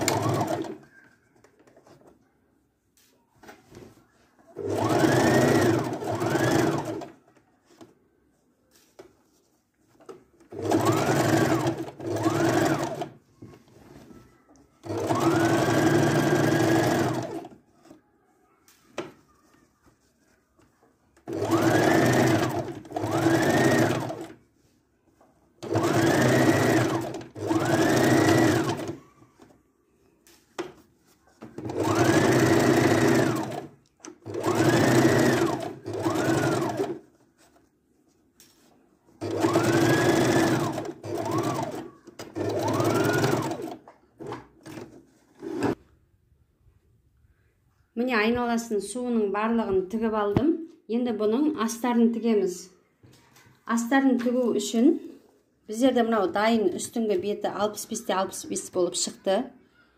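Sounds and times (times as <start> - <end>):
sewing machine stitching: 0.0 - 0.9, 4.6 - 7.2, 10.4 - 13.2, 14.8 - 17.6, 21.2 - 24.4, 25.6 - 29.5, 31.4 - 37.1, 39.2 - 45.8.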